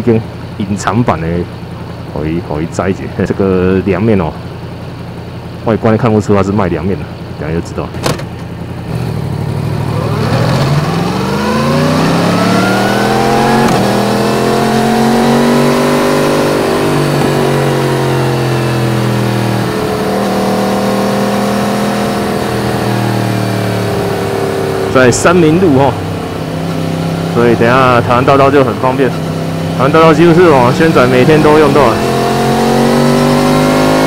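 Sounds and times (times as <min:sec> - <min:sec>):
motorcycle engine revving: 0:08.0 - 0:34.0.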